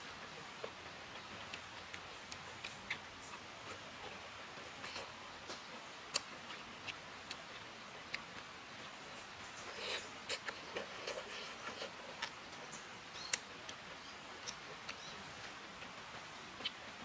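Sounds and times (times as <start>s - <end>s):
chewing with mouth clicks: 0.3s - 16.0s
wet slurping: 9.6s - 12.4s.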